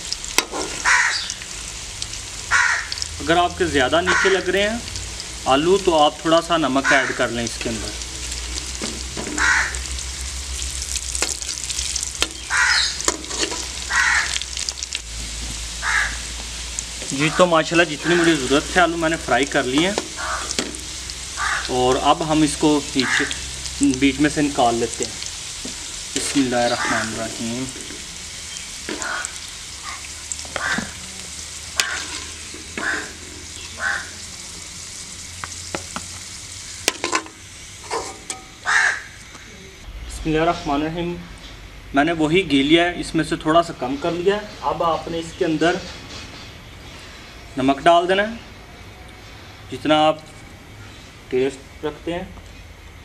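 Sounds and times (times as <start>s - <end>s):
potatoes sizzling in hot oil: 0.0s - 39.6s
bird calls: 0.8s - 1.4s, 9.3s - 9.9s, 11.7s - 14.4s, 19.8s - 21.8s, 25.8s - 27.6s, 28.3s - 31.0s, 31.8s - 34.2s, 37.8s - 39.9s
metal skimmer scraping a pan: 12.2s - 13.8s, 31.8s - 33.6s, 36.9s - 38.6s.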